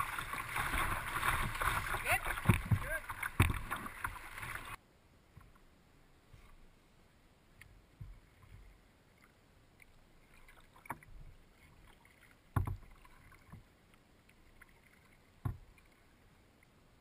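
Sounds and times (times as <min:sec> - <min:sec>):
paddling on water: 0:00.0 - 0:06.9, 0:07.5 - 0:17.0
hollow knocks on canoe hull: 0:12.5 - 0:12.8, 0:15.4 - 0:15.6.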